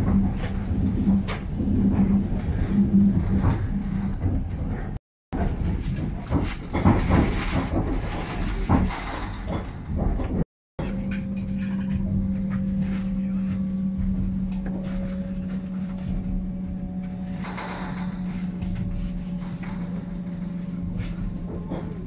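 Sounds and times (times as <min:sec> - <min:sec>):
train wheels rumbling on track: 0:00.0 - 0:22.0
steady low hum: 0:10.8 - 0:22.0.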